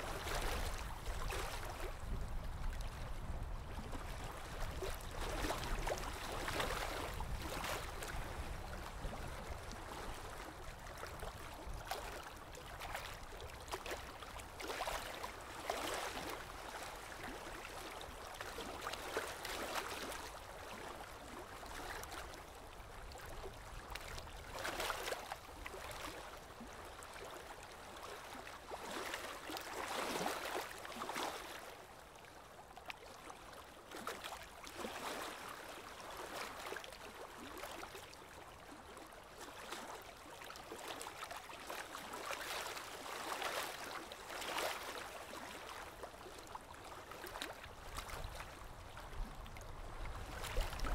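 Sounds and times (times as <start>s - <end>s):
stream water running: 0.0s - 50.9s.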